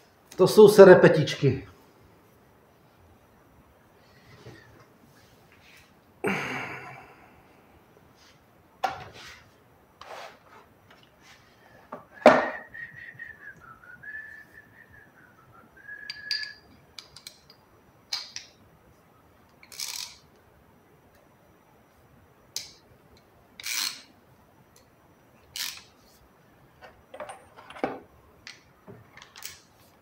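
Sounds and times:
person whistling wavering tone: 12.1s - 16.7s.

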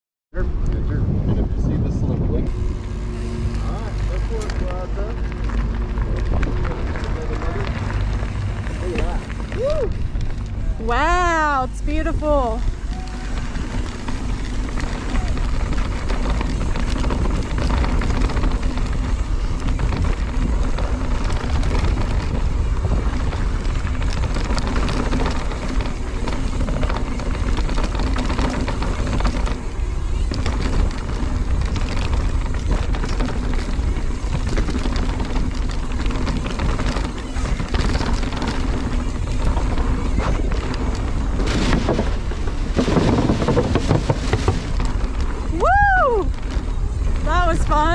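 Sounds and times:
bike rattling over bumps: 0.4s - 47.9s
wind rushing over microphone: 0.4s - 47.9s
tyres crunching over dirt: 2.5s - 47.9s
tyres clattering on wooden boards: 41.4s - 45.0s.

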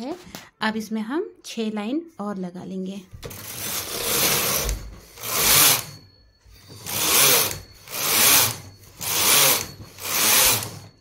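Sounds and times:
knitting machine carriage rasping: 3.2s - 11.0s.

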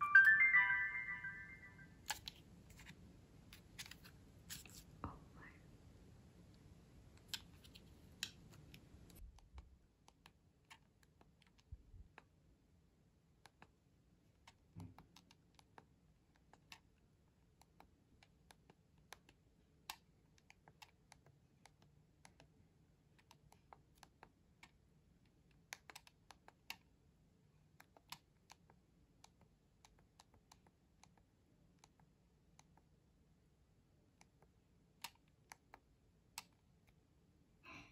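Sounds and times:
small buttons clicking: 25.5s - 26.9s.

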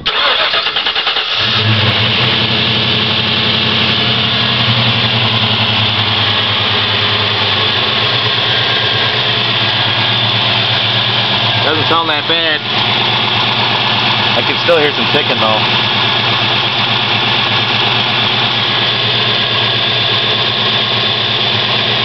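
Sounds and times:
car engine starter cranking: 0.0s - 2.1s
car engine idling with ticking: 1.3s - 22.0s.

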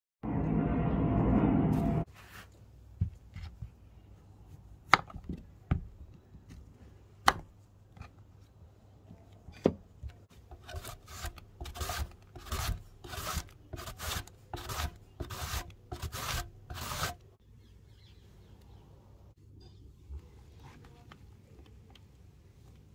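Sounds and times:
courgette rasping on grater: 10.5s - 17.2s.

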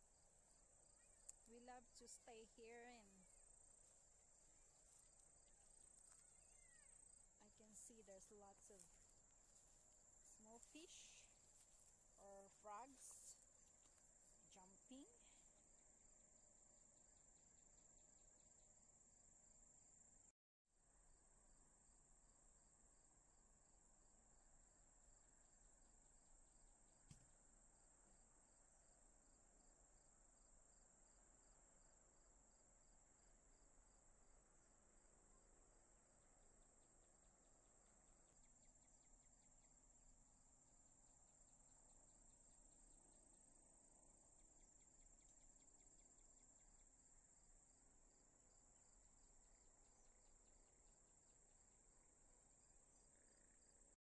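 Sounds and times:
ticking insect call: 0.0s - 16.4s
crickets trilling: 0.1s - 15.5s
faint click: 27.1s - 27.3s.

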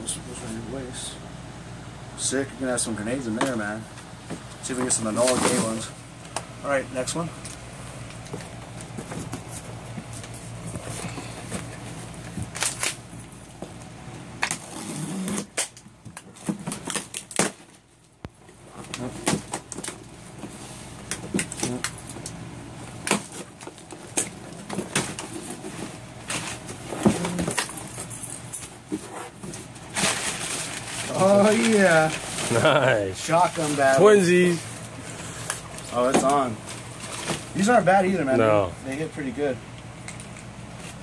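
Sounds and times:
packing paper crinkling: 29.6s - 37.7s.

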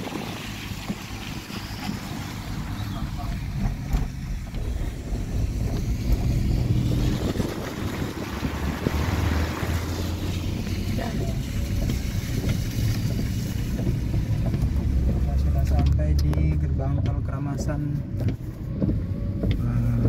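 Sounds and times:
car cabin low rumble: 0.0s - 20.0s.

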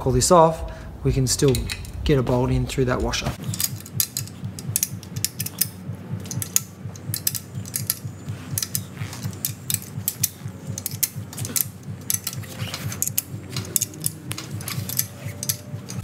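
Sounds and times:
ratcheting spanner clicking: 3.4s - 16.0s.

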